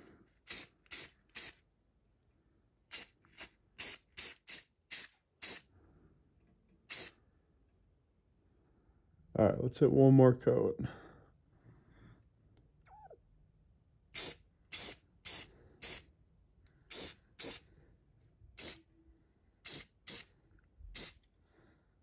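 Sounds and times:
airbrush spraying bursts: 0:00.4 - 0:01.6, 0:02.9 - 0:05.7, 0:06.9 - 0:07.2, 0:14.2 - 0:16.1, 0:16.9 - 0:17.7, 0:18.6 - 0:18.9, 0:19.6 - 0:20.3, 0:20.9 - 0:21.2.

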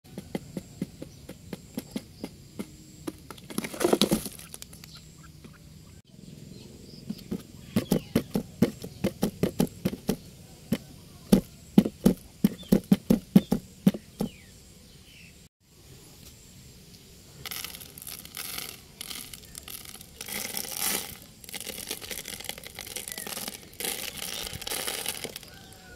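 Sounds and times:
taps on cardboard box: 0:07.1 - 0:14.4.

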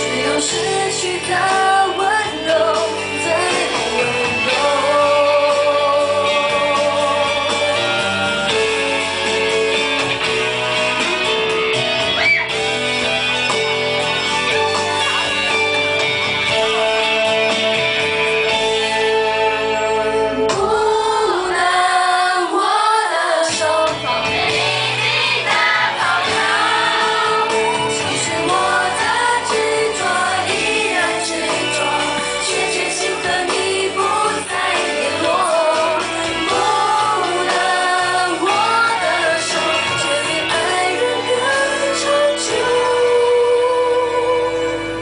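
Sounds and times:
woman singing into a microphone: 0:00.0 - 0:07.5, 0:20.4 - 0:24.0, 0:26.6 - 0:45.0
instrumental accompaniment: 0:00.0 - 0:21.8, 0:23.6 - 0:45.0.

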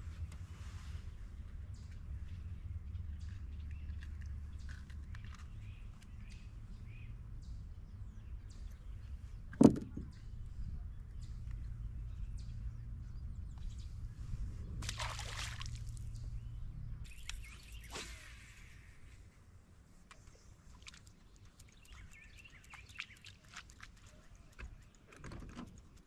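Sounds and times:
low steady rumble: 0:00.0 - 0:20.0
sharp thump: 0:09.6 - 0:10.1
fish splashing into water: 0:14.8 - 0:16.0.

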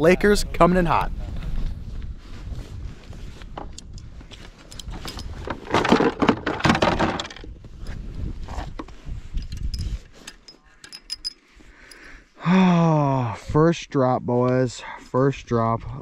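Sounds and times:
wind rumble on microphone: 0:00.0 - 0:10.3
fishing gear clattering: 0:04.6 - 0:08.0, 0:09.4 - 0:12.2.

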